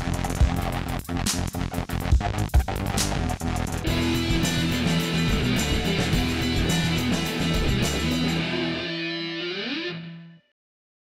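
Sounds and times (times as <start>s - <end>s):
drums: 0.0s - 9.1s
guitar slide: 3.8s - 10.4s
strummed guitar chords: 3.8s - 10.4s.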